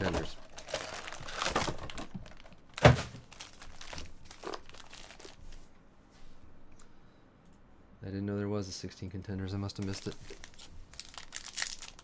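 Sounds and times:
foil packs crinkling: 0.0 - 5.6, 9.7 - 12.0.

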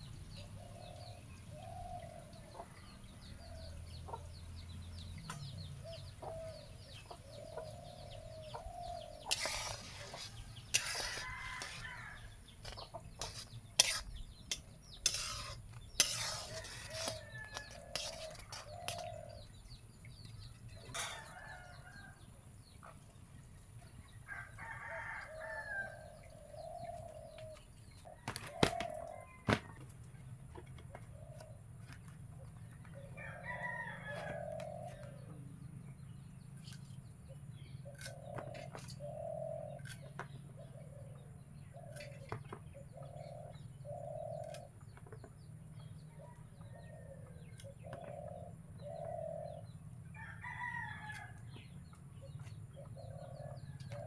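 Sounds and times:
rooster crowing: 33.2 - 34.6, 50.1 - 51.4.

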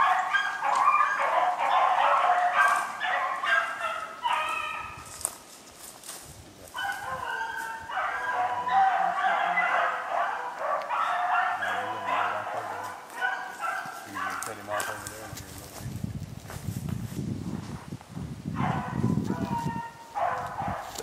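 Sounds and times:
pack of dogs baying: 0.0 - 5.2, 6.8 - 15.4, 18.6 - 21.0.

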